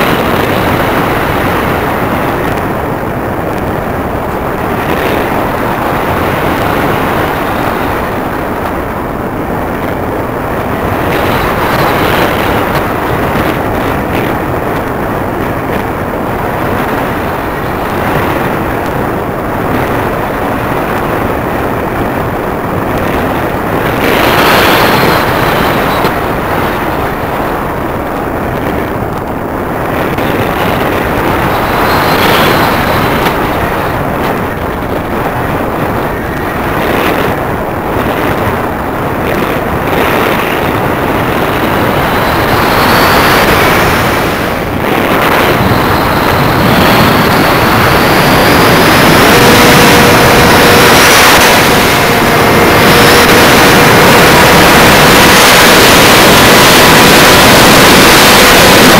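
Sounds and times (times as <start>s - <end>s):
airflow rushing over microphone: 0.0s - 58.9s
faint high whine: 29.4s - 58.9s.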